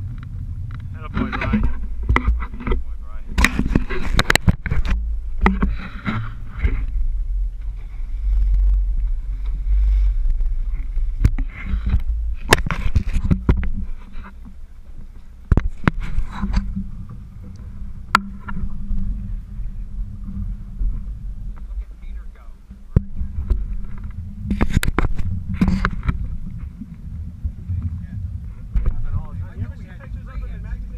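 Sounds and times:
boat rumbling: 0:00.0 - 0:30.9
hum: 0:00.0 - 0:30.9
wind on microphone: 0:00.0 - 0:30.9
sharp knocks and clicks: 0:00.1 - 0:07.0, 0:11.2 - 0:14.6, 0:15.5 - 0:19.1, 0:22.7 - 0:26.8.

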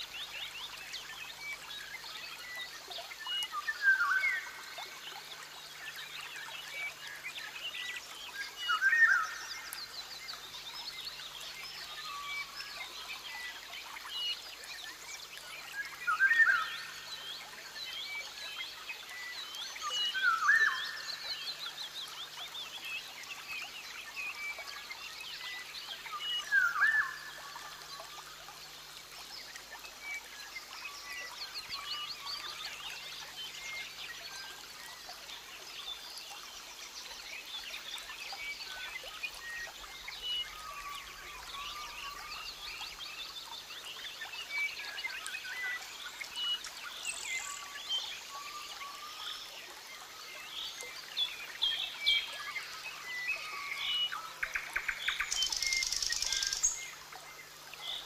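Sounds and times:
steady background hiss: 0:44.4 - 0:58.0.

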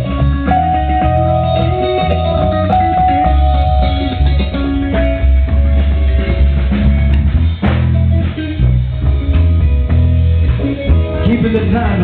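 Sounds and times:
drum kit: 0:00.0 - 0:12.0
electric bass guitar: 0:00.0 - 0:12.0
electric guitar: 0:00.0 - 0:12.0
keyboard playing: 0:00.0 - 0:12.0.

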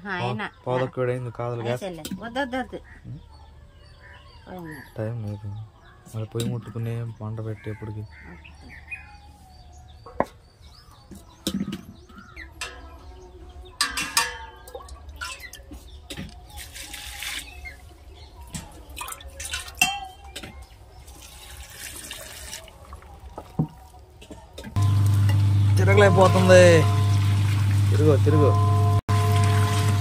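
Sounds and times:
steel vessels clinking: 0:11.5 - 0:15.9, 0:18.9 - 0:20.5, 0:24.2 - 0:30.0
water pouring into steel drum: 0:16.5 - 0:17.9, 0:18.8 - 0:20.0, 0:20.9 - 0:23.4, 0:24.8 - 0:30.0.

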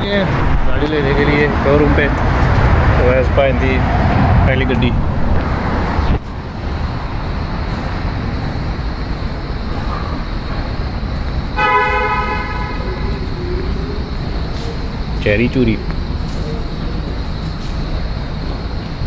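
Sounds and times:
road traffic rumble: 0:00.0 - 0:19.0
car horn toot: 0:11.6 - 0:13.4.

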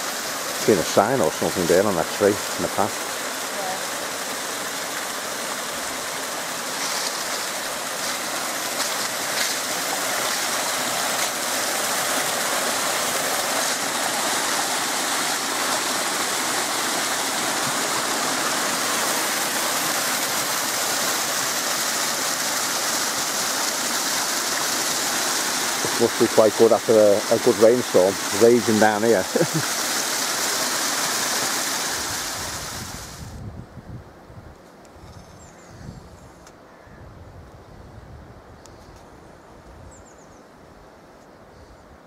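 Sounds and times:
stream cascading over rocks: 0:00.0 - 0:33.4.

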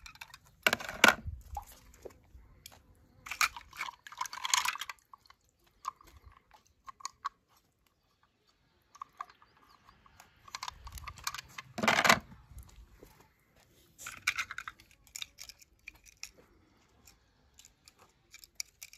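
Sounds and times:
toy cars clicking and rustling: 0:00.0 - 0:02.0, 0:02.6 - 0:08.1, 0:08.8 - 0:12.8, 0:13.9 - 0:18.9.

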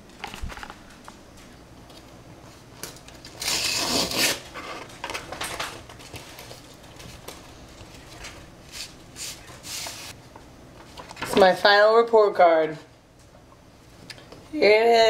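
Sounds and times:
paper envelope ripping: 0:03.2 - 0:04.5.

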